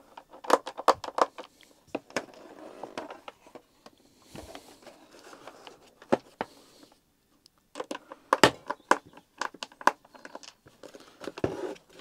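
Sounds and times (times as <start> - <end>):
faint scraping: 1.7 - 7.0.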